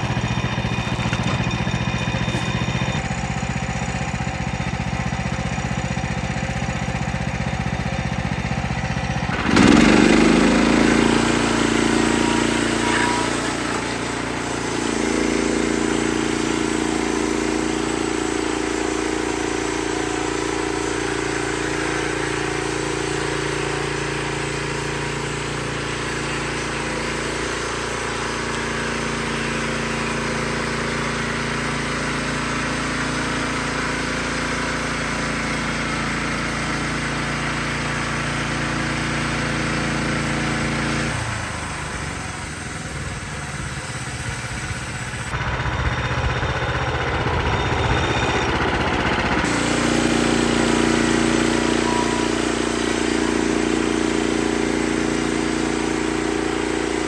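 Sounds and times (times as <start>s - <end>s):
sawmill engine running: 0.0s - 57.0s
band blade sawing wood: 9.3s - 32.1s, 49.4s - 57.0s.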